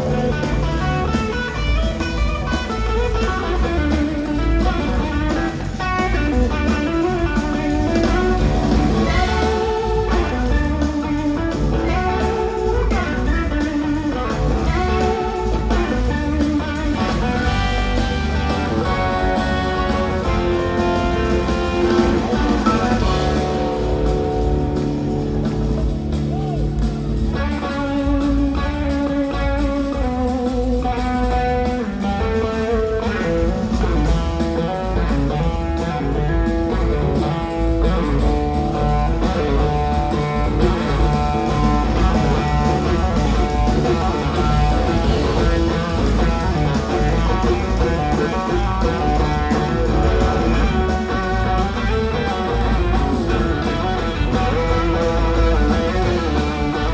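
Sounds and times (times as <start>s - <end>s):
bass guitar: 0.0s - 56.9s
drums: 0.0s - 56.9s
electric slide guitar: 0.0s - 56.9s.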